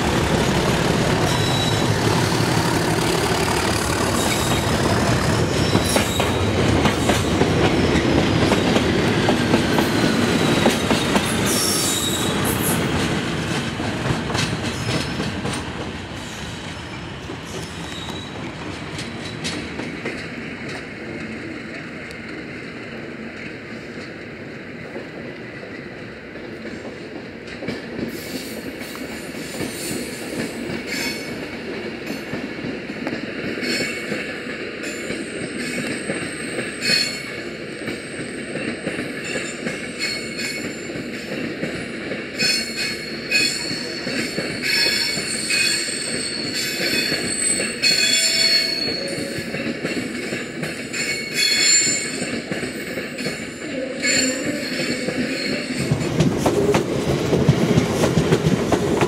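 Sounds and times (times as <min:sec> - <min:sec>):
low train rumble: 0:00.0 - 0:59.0
train wheels squealing: 0:01.2 - 0:08.8, 0:09.6 - 0:12.9, 0:16.2 - 0:18.5, 0:28.1 - 0:31.4, 0:33.6 - 0:56.1
train wheel clicks: 0:17.6 - 0:22.4.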